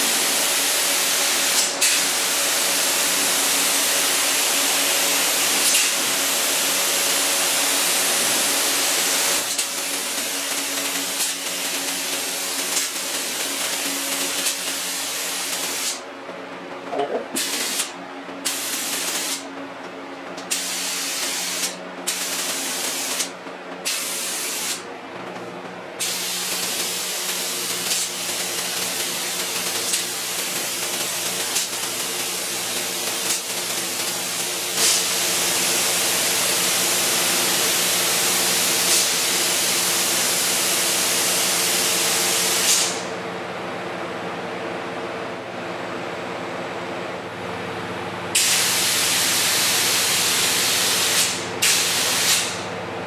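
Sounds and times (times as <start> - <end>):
spray gun hissing: 0.1 - 4.2, 18.5 - 19.4, 20.5 - 23.3, 23.9 - 24.8, 26.0 - 28.4, 48.4 - 52.6
steady low hum: 9.5 - 26.8.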